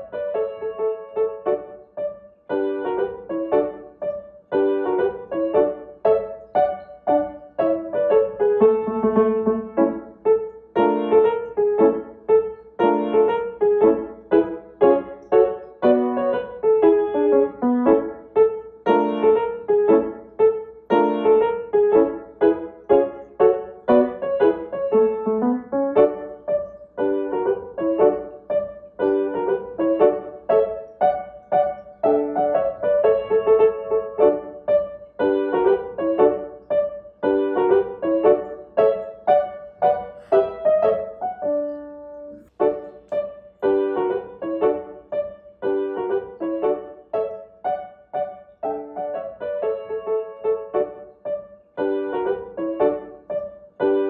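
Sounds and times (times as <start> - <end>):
piano music: 0.0 - 54.0.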